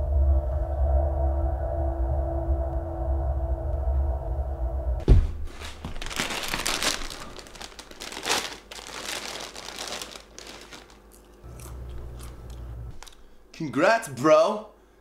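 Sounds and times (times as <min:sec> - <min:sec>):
person dropping onto couch: 0:05.0 - 0:06.2
chip bag rustling: 0:05.4 - 0:13.3.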